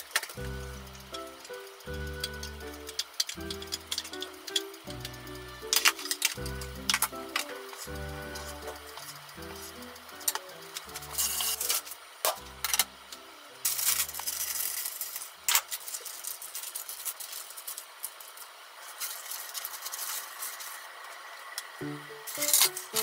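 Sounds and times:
aluminium foil crinkling: 0.0s - 12.9s, 13.6s - 23.0s
light background music: 0.2s - 14.8s, 21.8s - 23.0s
wax paper rustling and crinkling: 13.7s - 21.4s.

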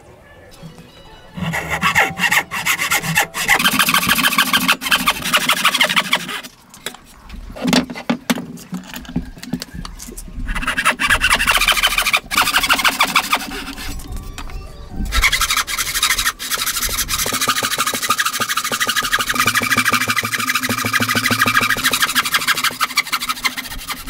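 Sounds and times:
hand saw rasping through wood: 1.4s - 6.5s, 10.5s - 14.0s, 15.1s - 24.0s
knocks: 16.6s - 22.8s.

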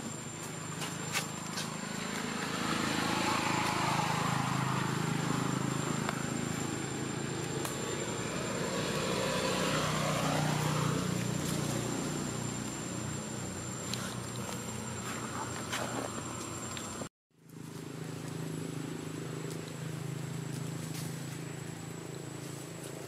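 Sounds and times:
passing engine droning: 0.1s - 17.1s.

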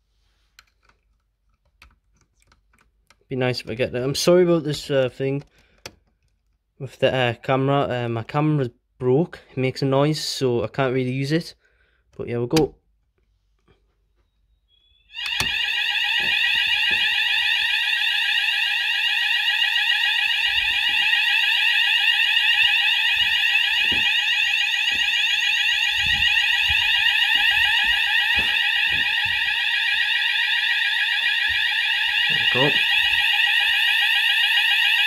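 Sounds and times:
fire alarm rising sweep tone: 14.4s - 35.0s
footsteps: 15.4s - 17.8s, 20.3s - 21.4s, 22.2s - 30.1s.

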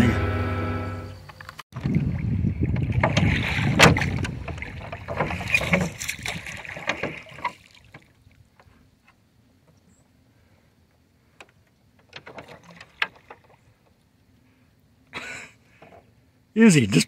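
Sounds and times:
knocks and clatter on boat: 1.8s - 8.6s, 12.0s - 14.0s
water sloshing against hull: 1.8s - 10.1s, 11.3s - 15.0s.

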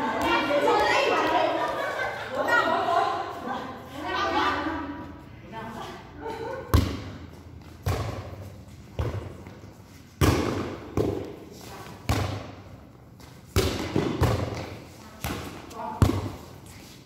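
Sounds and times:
volleyball being hit: 10.2s - 11.4s, 13.5s - 16.4s.

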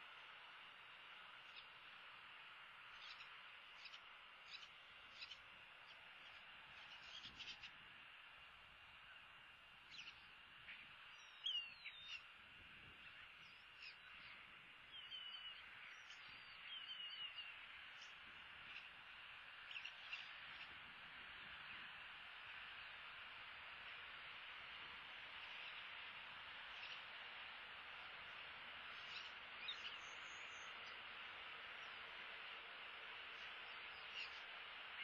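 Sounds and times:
faint bird chirps and trills: 0.0s - 35.0s
steady background hiss: 0.0s - 35.0s.

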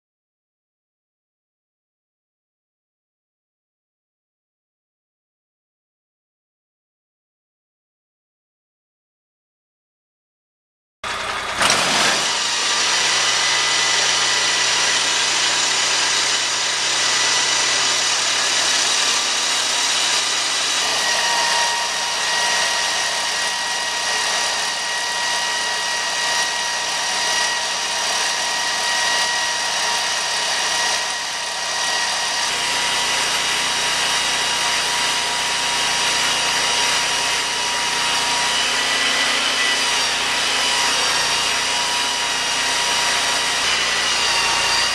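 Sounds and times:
sawmill engine drone: 11.0s - 44.9s
saw high whine: 11.1s - 44.9s.

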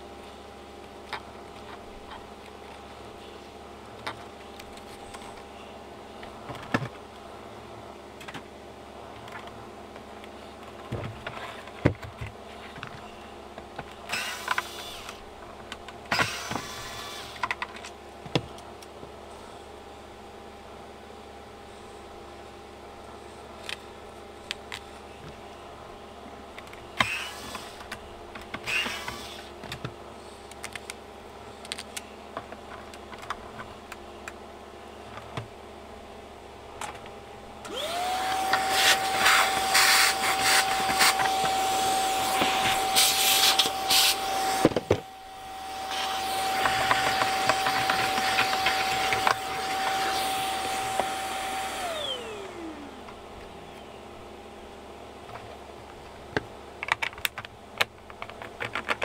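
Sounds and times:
cordless screwdriver bursts: 14.1s - 15.2s, 16.1s - 17.4s, 27.0s - 27.8s, 28.6s - 29.5s
vacuum cleaner running: 14.1s - 15.3s, 16.1s - 17.5s, 27.0s - 27.9s, 28.5s - 29.6s, 37.6s - 53.9s.

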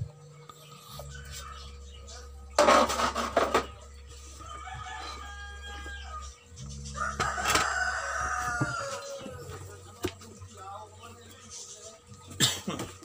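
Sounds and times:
rooster crowing: 4.3s - 9.6s.

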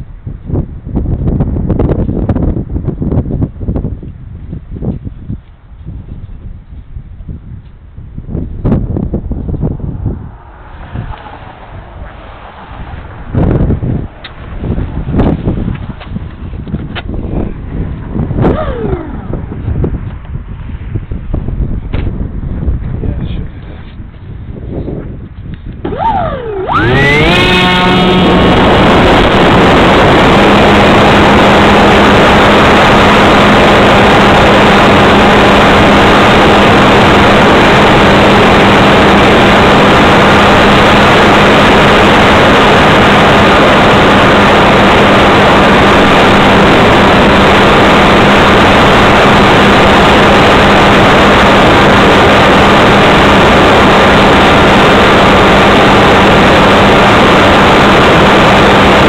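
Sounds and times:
model airplane motor and propeller: 25.4s - 59.0s.

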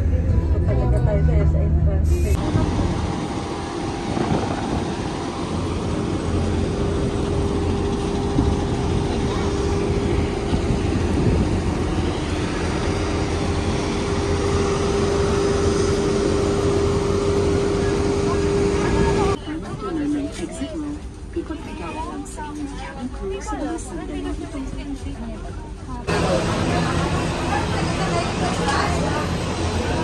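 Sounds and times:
aircraft turbine engine drone: 2.2s - 19.4s, 26.1s - 30.0s.

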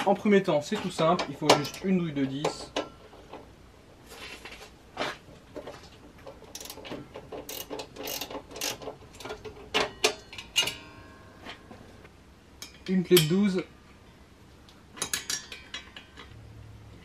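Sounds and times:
ratchet pawl clicking: 6.5s - 9.3s.

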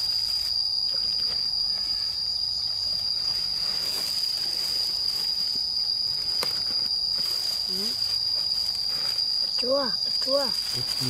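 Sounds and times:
high-pitched insect shrilling: 0.0s - 11.0s.

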